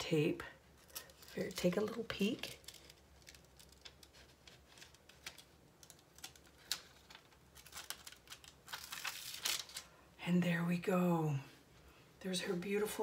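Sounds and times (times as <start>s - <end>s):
wax paper crinkling: 0.6s - 10.0s.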